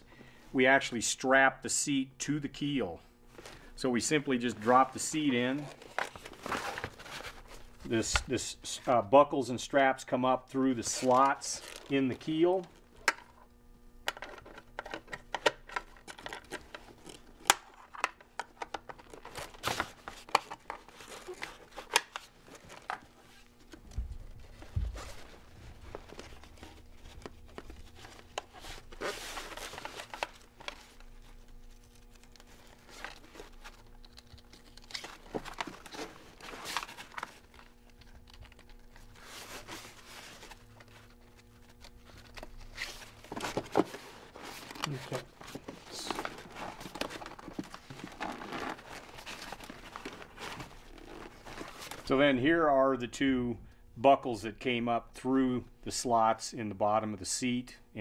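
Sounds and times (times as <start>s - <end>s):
fabric and straps rustling: 39.1s - 52.1s.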